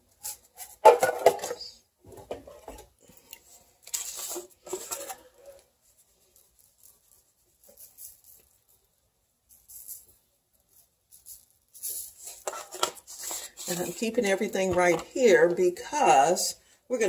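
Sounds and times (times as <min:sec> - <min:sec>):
spice shaker shaking patter: 0:06.2 - 0:08.8, 0:09.5 - 0:12.5.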